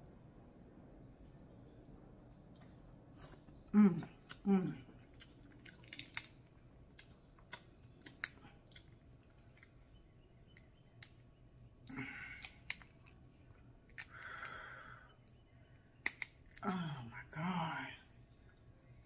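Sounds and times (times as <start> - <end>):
crab shell cracking: 4.3 - 9.8, 10.5 - 15.4, 16.0 - 16.9.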